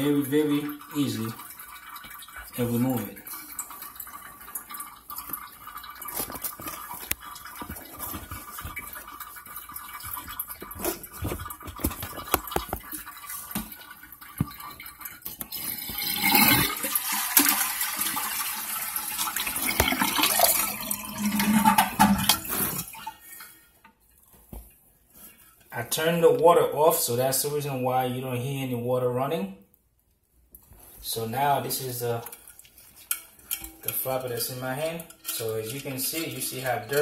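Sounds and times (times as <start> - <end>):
water splashing in toilet tank: 0.0 - 25.4, 31.0 - 37.0
knocks and scrapes of plastic parts: 6.0 - 16.6.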